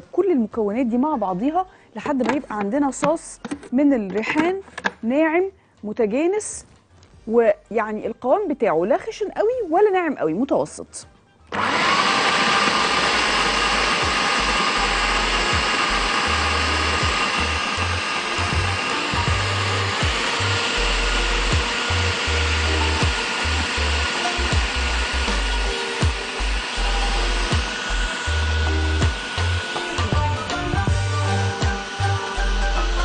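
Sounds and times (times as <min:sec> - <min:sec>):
food processor chopping: 0:11.5 - 0:33.0.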